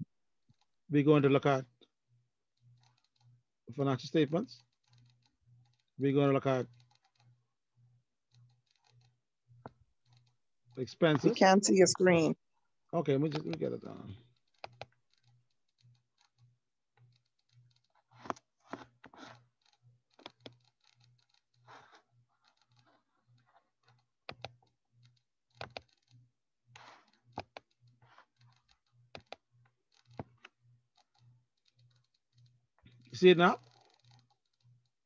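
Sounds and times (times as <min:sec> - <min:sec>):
computer keyboard typing: 0:14.6 - 0:15.3, 0:20.2 - 0:23.0, 0:23.8 - 0:26.2, 0:26.8 - 0:32.5, 0:33.4 - 0:34.9
mouse clicks: 0:29.1 - 0:29.4.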